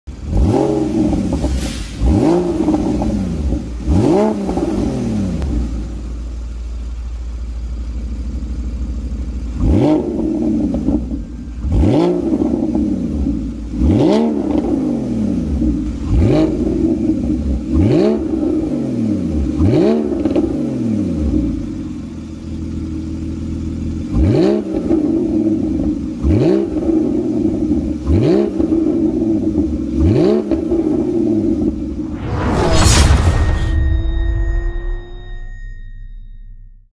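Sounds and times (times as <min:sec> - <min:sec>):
car engine revving: 0:00.1 - 0:06.1, 0:09.6 - 0:22.0, 0:23.9 - 0:35.0
car engine idling: 0:05.4 - 0:11.9, 0:21.0 - 0:24.1.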